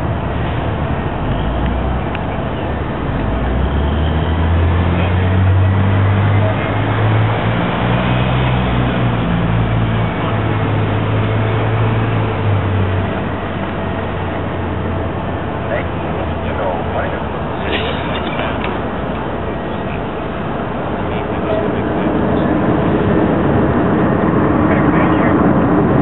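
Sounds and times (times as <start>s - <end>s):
low engine rumble: 0.0s - 26.0s
steady rushing noise: 0.0s - 26.0s.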